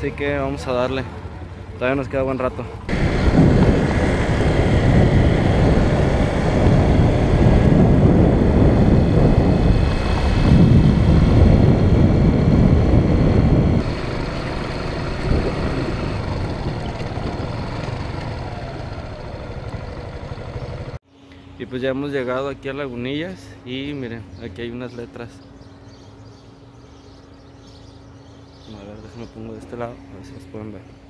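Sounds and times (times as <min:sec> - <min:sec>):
motorcycle engine running: 0:00.0 - 0:21.0
wind rush on microphone: 0:02.9 - 0:19.9.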